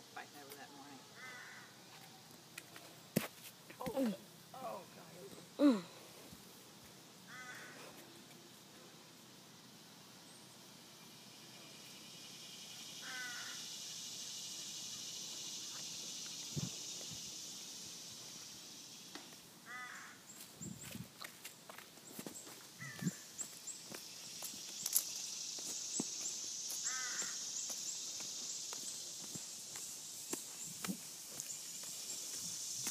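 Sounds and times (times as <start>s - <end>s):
insects droning: 0.0s - 32.9s
crow cawing: 1.2s - 1.8s, 7.3s - 7.9s, 13.0s - 13.7s, 19.6s - 20.2s, 22.8s - 23.2s, 26.8s - 27.5s
footsteps on dirt trail: 1.9s - 4.0s, 19.3s - 32.9s.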